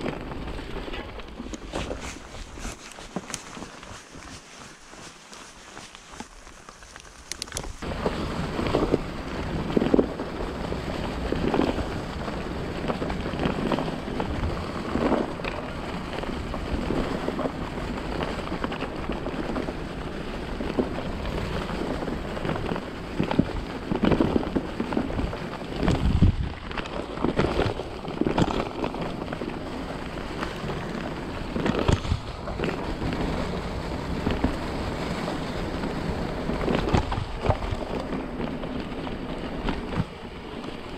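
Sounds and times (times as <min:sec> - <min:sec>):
bike knocking and rattling: 0:00.0 - 0:40.9
bike tyres on leaves and dirt: 0:00.0 - 0:40.9
wind rushing on microphone: 0:19.4 - 0:26.7, 0:30.3 - 0:40.9.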